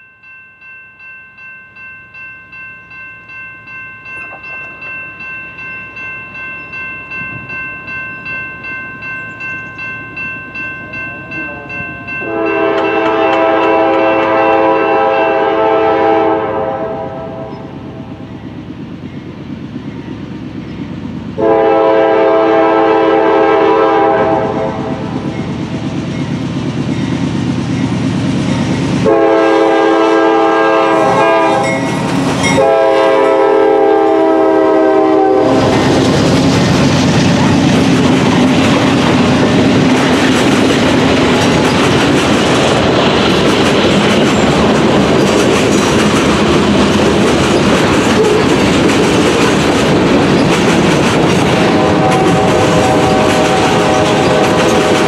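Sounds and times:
bell ringing: 0:00.0 - 0:13.4, 0:31.6 - 0:32.6
locomotive engines rumbling: 0:02.8 - 0:55.0
train air horn blasts: 0:12.2 - 0:17.8, 0:21.4 - 0:25.2, 0:29.0 - 0:36.0, 0:48.1 - 0:48.5, 0:51.5 - 0:55.0.

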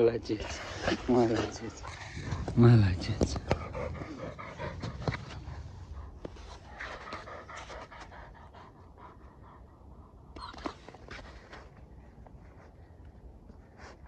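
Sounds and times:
dog panting rapidly: 0:01.0 - 0:10.2.

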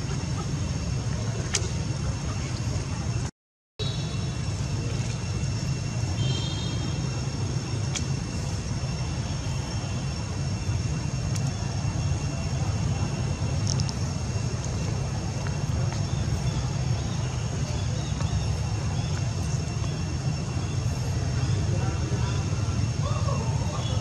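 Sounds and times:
low outdoor rumble: 0:00.0 - 0:24.0.

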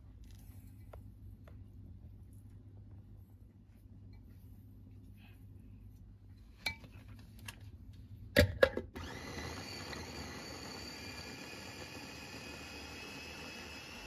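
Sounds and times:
food chopper motor running: 0:09.0 - 0:14.0.

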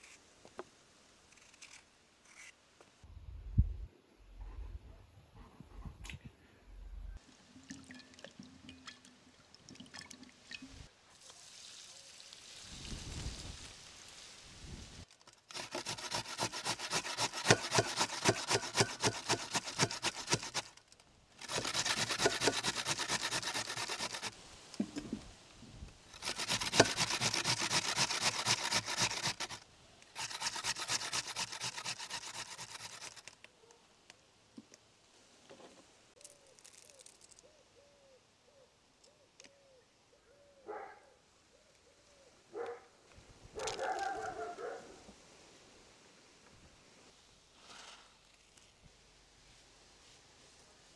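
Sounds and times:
potato grating on metal grater: 0:15.5 - 0:20.8, 0:21.4 - 0:24.3, 0:26.2 - 0:29.6, 0:30.2 - 0:33.3.

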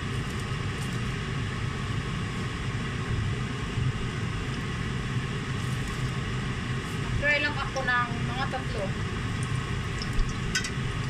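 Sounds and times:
oil sizzling in deep frying: 0:04.1 - 0:11.0.

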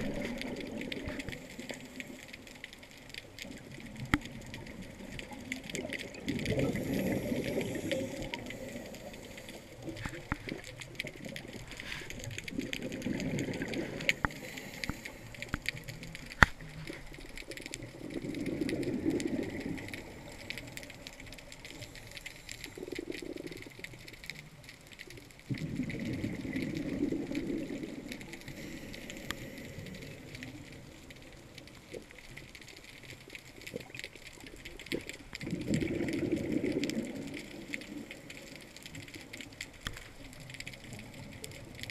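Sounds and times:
crackle of small clicks: 0:00.0 - 0:41.9
underwater exhalation bubbles: 0:03.4 - 0:21.1, 0:25.5 - 0:30.7, 0:34.8 - 0:38.6.

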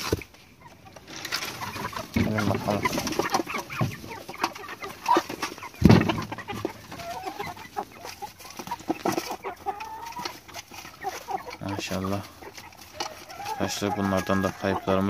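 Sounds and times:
chickens clucking: 0:00.0 - 0:15.0
loud thump: 0:05.8 - 0:06.2.

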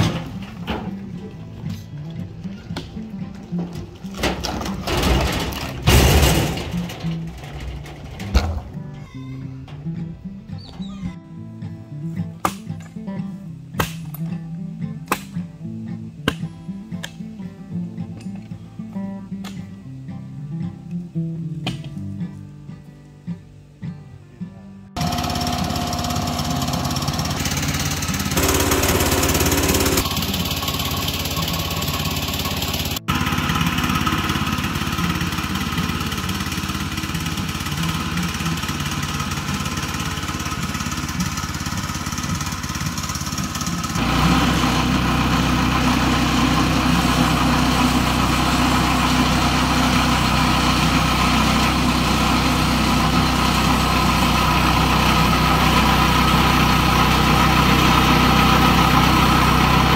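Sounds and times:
small gasoline engine running: 0:25.0 - 0:59.9.

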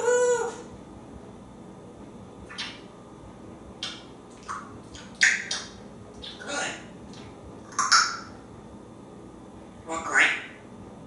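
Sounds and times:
parrot clicking and hissing: 0:03.8 - 0:06.4, 0:07.1 - 0:08.3.

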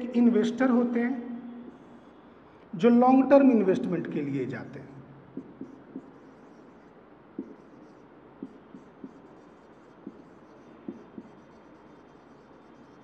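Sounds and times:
steady low hiss: 0:00.0 - 0:13.0
stylus tapping on whiteboard: 0:05.3 - 0:06.8, 0:07.4 - 0:13.0.

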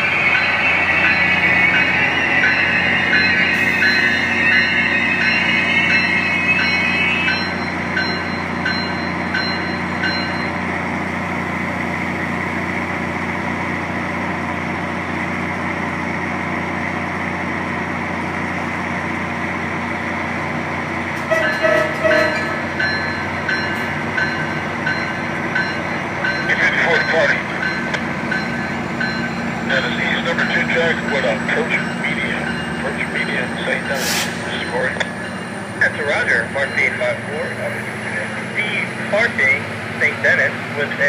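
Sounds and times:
train bell ringing: 0:00.0 - 0:12.6, 0:21.2 - 0:39.4
diesel locomotive engine hum: 0:00.0 - 0:41.0.

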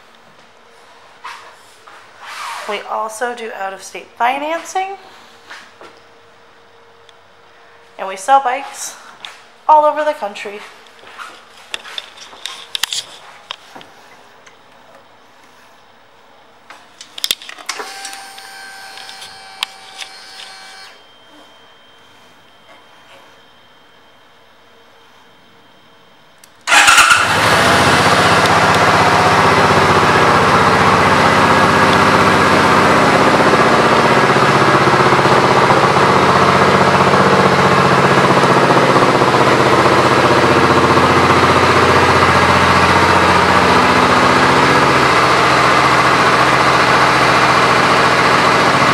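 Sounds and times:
motorcycle engine starting: 0:26.5 - 0:48.9
motorcycle engine idling: 0:26.7 - 0:48.9.

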